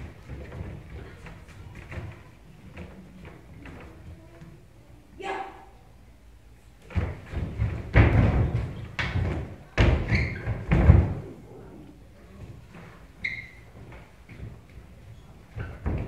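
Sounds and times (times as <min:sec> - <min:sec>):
feet stomping on stage floor: 0:06.9 - 0:11.2.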